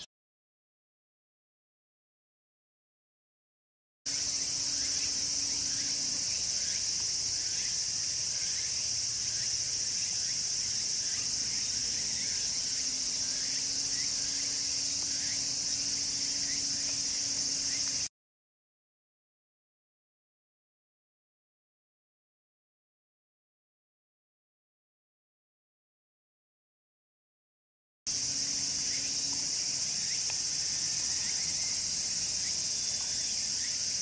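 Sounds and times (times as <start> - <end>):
insect chorus shrill: 4.1 - 18.1, 28.1 - 34.0
short insect chirps: 4.1 - 18.1, 28.1 - 34.0.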